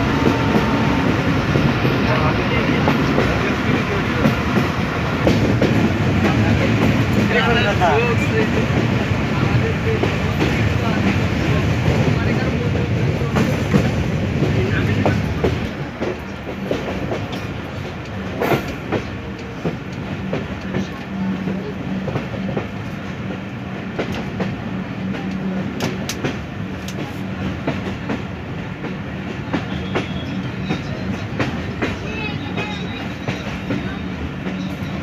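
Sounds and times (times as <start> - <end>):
train wheels rumbling on rail: 0.0 - 35.0.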